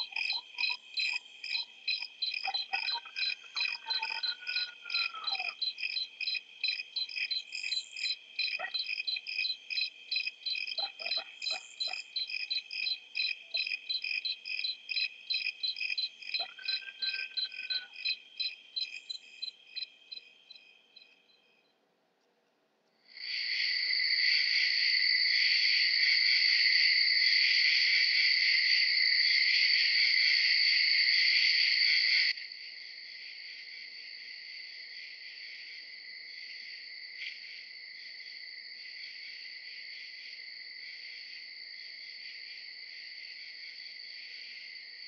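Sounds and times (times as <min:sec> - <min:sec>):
insect chirping: 0:00.0 - 0:21.7.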